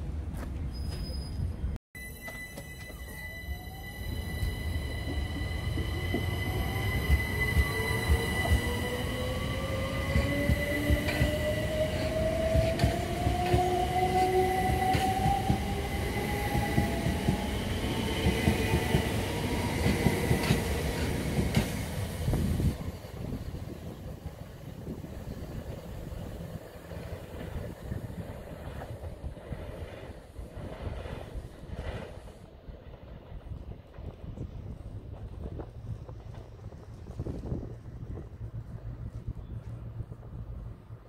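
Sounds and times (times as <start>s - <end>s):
train rumble: 0.0s - 41.0s.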